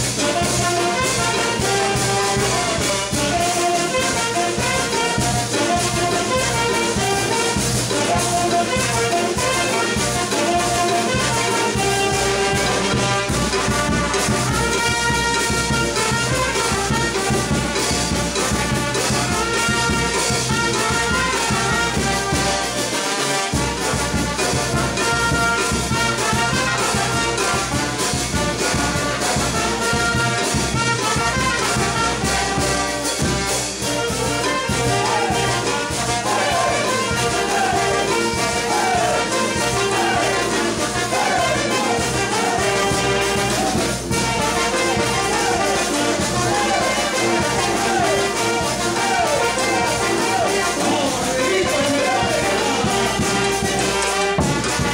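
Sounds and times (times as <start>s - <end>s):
brass band playing: 0.0s - 54.9s
bass drum beat: 54.4s - 54.9s.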